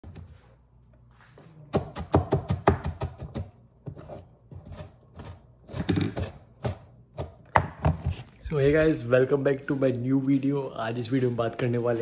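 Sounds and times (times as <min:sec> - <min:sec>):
knife chopping on cutting board: 0:01.7 - 0:08.2.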